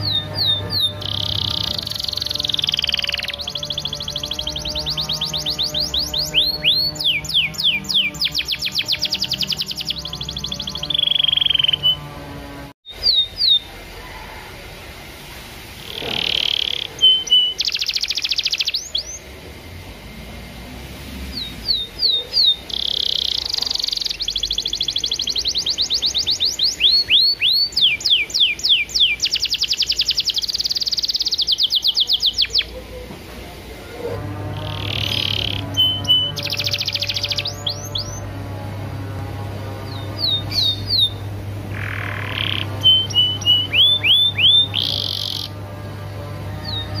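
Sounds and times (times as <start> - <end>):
canary singing: 0.0 - 14.3, 15.8 - 19.3, 21.2 - 33.0, 34.0 - 47.0.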